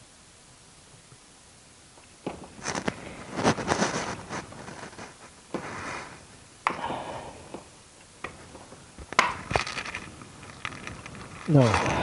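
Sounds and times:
scraping and rustling: 0:02.3 - 0:06.3, 0:08.3 - 0:12.0.

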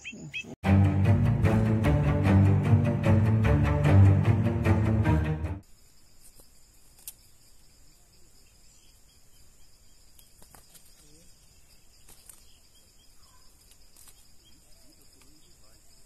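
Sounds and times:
bowed string music: 0:00.6 - 0:05.6
insect chorus trilling: 0:05.6 - 0:16.0.

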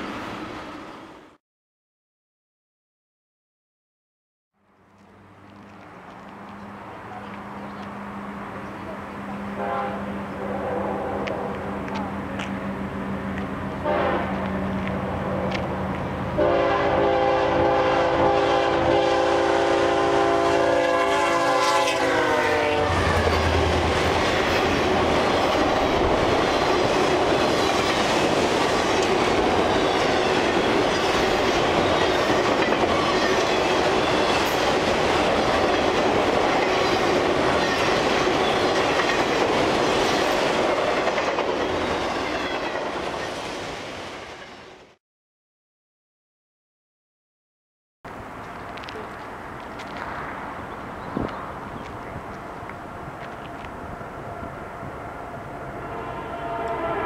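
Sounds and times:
freight train rumbling by: 0:05.1 - 0:45.0
locomotive air horn chord: 0:09.5 - 0:11.3, 0:13.8 - 0:14.4, 0:16.4 - 0:23.6, 0:55.8 - 0:57.0
train wheels clickety-clack: 0:23.2 - 0:43.3.

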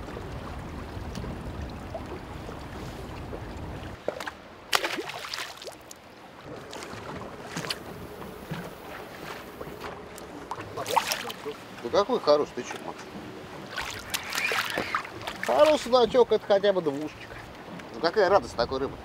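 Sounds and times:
wind rumble on microphone: 0:00.0 - 0:04.0, 0:17.2 - 0:19.0
water: 0:00.0 - 0:19.0
fish splash in river: 0:04.0 - 0:05.9, 0:10.8 - 0:11.5, 0:13.7 - 0:15.5.

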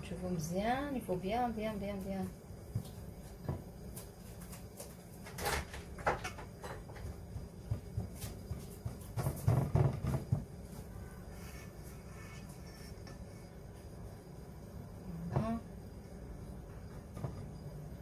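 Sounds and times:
hands patting pastry: 0:06.9 - 0:10.9.

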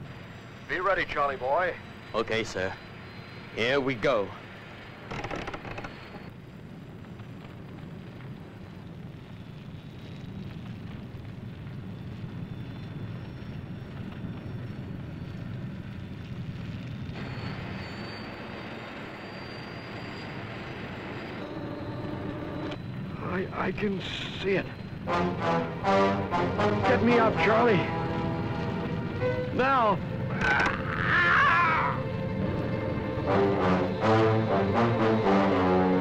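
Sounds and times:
low rumble of fire: 0:00.0 - 0:36.0
hissing: 0:13.8 - 0:36.0.

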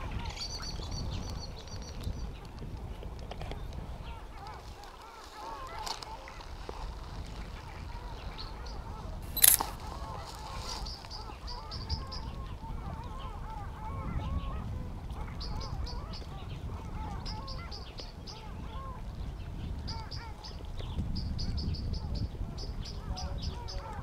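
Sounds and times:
waterfowl honking: 0:04.1 - 0:06.9
sharp click: 0:09.3 - 0:09.8.

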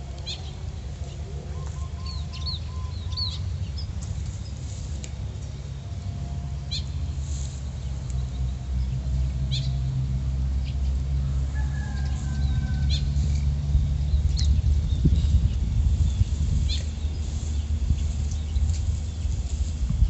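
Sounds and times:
wind on microphone: 0:11.6 - 0:20.0.

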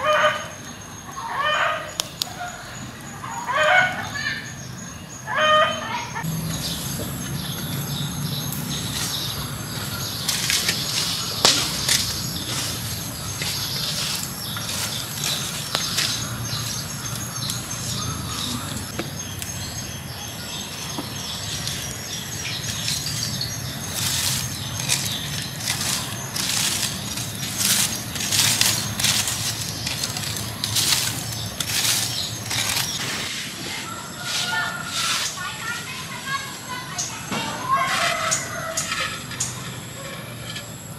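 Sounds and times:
stick scraping embers and ash: 0:08.4 - 0:19.7, 0:20.8 - 0:36.0
sharp snaps and crackles: 0:08.5 - 0:19.6, 0:21.5 - 0:33.0.

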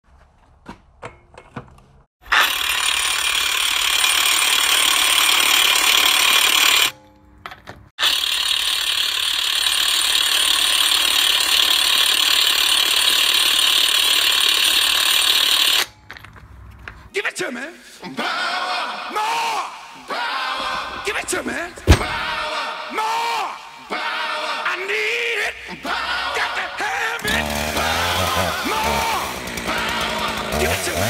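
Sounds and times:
impact wrench hammering: 0:20.6 - 0:22.4.

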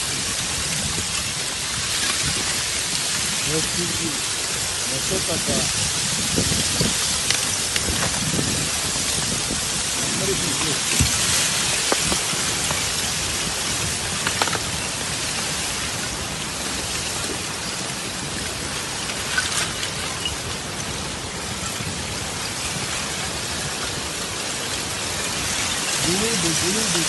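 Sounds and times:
ice grinding and crackling: 0:00.0 - 0:27.0
sharp ice cracks: 0:10.5 - 0:12.9.

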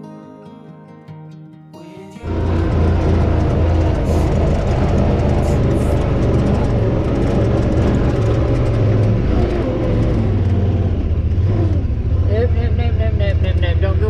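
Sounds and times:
utility vehicle engine running: 0:02.2 - 0:14.0.

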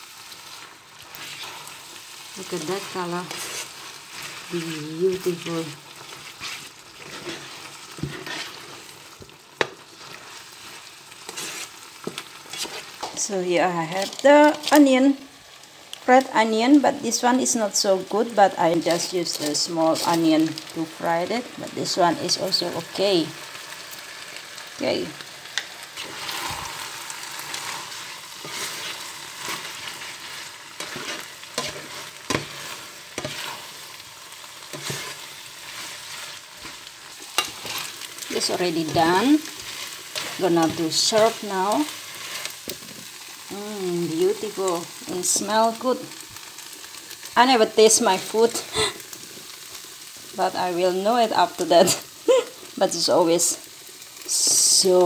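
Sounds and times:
noodles sizzling in a wok: 0:00.0 - 0:55.0
spatula scraping and clicking: 0:06.0 - 0:10.2, 0:11.3 - 0:13.2, 0:30.8 - 0:33.6, 0:34.7 - 0:36.0, 0:36.6 - 0:39.0.

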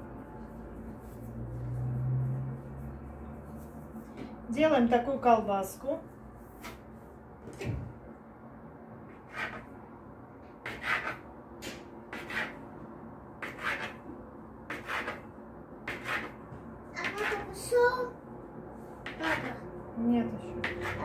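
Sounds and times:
knife cutting dough on wood: 0:09.1 - 0:09.7, 0:10.6 - 0:12.6, 0:13.4 - 0:14.0, 0:14.7 - 0:15.3, 0:15.9 - 0:16.4, 0:19.0 - 0:19.5, 0:20.6 - 0:21.0.

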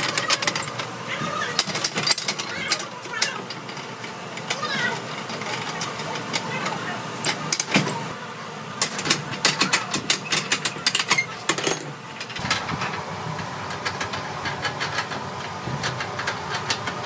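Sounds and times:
low machine hum: 0:00.0 - 0:17.0.

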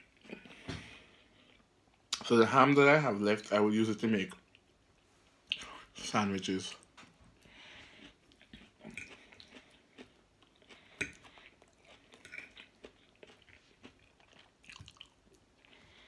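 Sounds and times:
chewing and mouth sounds: 0:07.8 - 0:16.0.

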